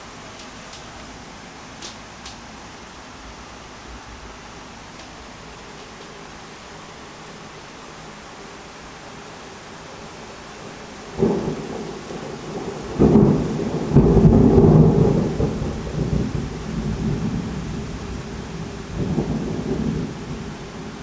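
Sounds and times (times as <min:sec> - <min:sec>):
steady rain: 0:00.0 - 0:21.0
thunder clap and rumble: 0:11.1 - 0:21.0.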